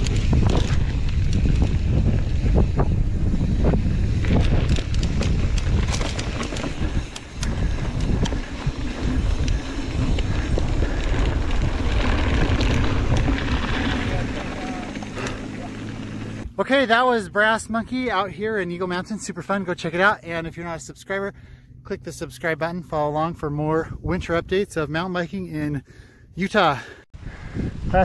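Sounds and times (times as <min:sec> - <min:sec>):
bike clicks and rattles: 0:00.0 - 0:16.5
wind buffeting microphone: 0:00.0 - 0:16.6, 0:27.2 - 0:28.0
bike tyres rolling over gravel: 0:00.0 - 0:21.2.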